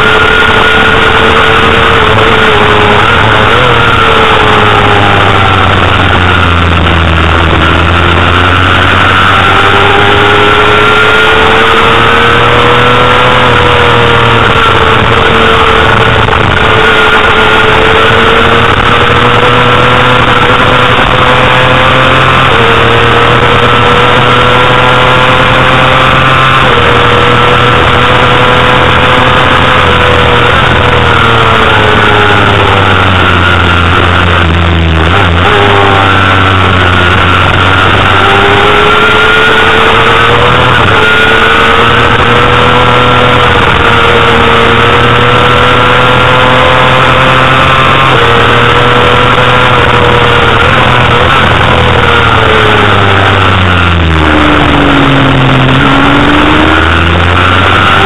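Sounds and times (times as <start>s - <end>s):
motorcycle engine revving high: 0.0s - 58.0s
wind rushing over microphone: 0.0s - 58.0s.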